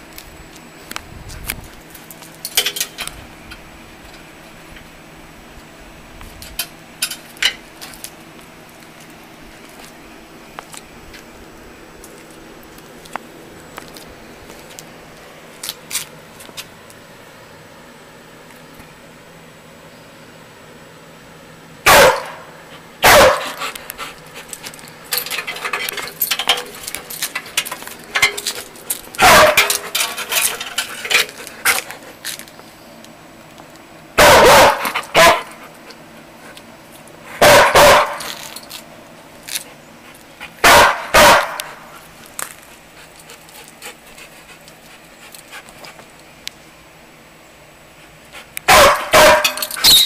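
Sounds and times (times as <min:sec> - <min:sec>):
dog barking: 0:21.9 - 0:23.6, 0:29.2 - 0:29.7, 0:34.2 - 0:35.6, 0:37.4 - 0:38.3, 0:40.6 - 0:41.7, 0:48.7 - 0:49.6.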